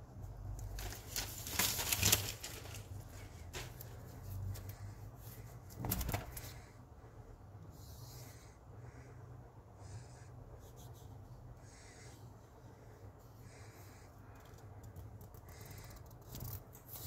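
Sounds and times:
steady low hum: 0.0 - 17.0
plastic wrap crinkling: 0.6 - 4.6.

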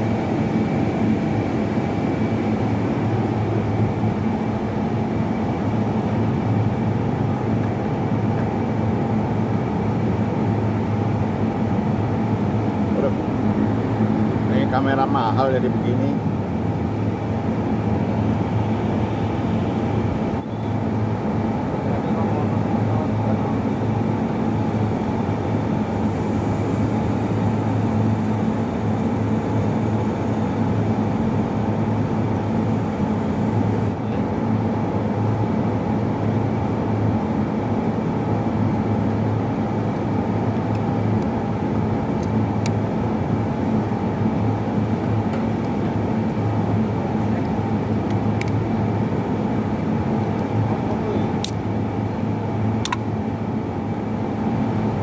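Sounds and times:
mechanical drone: 10.8 - 36.0.

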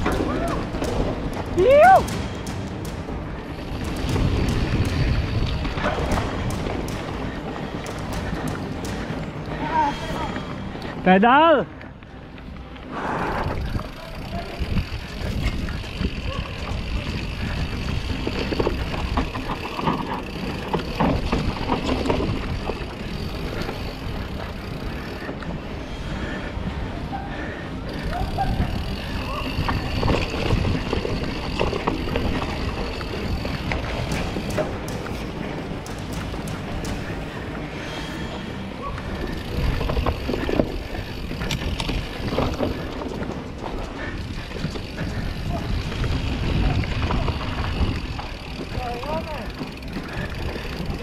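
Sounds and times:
bike rattling over bumps: 0.0 - 10.7, 13.4 - 51.0
bike tyres crunching on dirt: 0.0 - 51.0
wind rumble on microphone: 13.0 - 19.9, 27.9 - 34.6, 39.3 - 48.9.

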